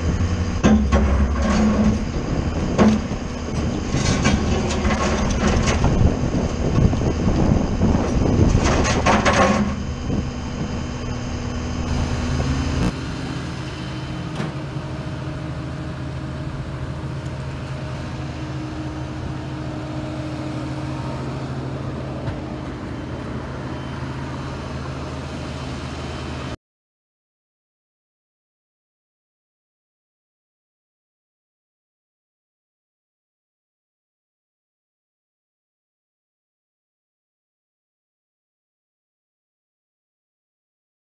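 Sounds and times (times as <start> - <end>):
vehicle engine idling: 9.8 - 26.5.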